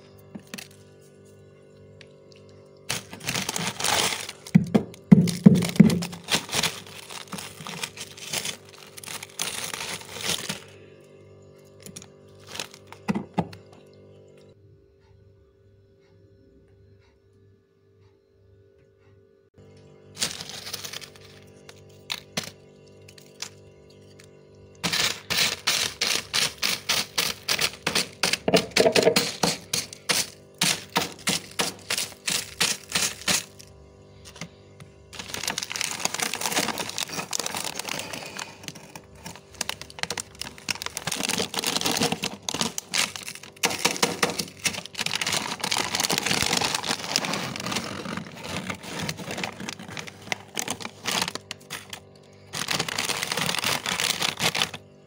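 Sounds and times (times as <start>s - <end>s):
metal spoon scraping frost: 24.8s - 33.6s, 35.1s - 54.8s.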